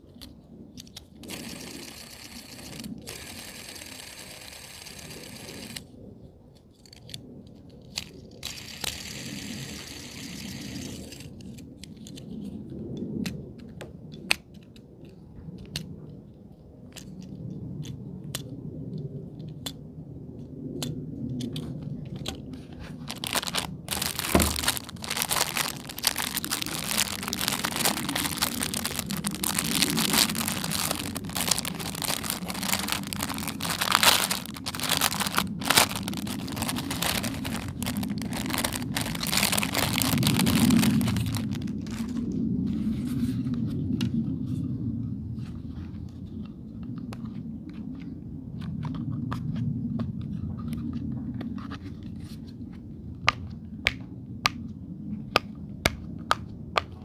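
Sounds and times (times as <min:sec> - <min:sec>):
plastic packaging crinkling and tearing: 0:01.2 - 0:05.8, 0:07.9 - 0:09.8, 0:22.9 - 0:42.4
clicks of plastic toys: 0:06.8 - 0:09.1, 0:19.4 - 0:19.8, 0:23.1 - 0:42.2.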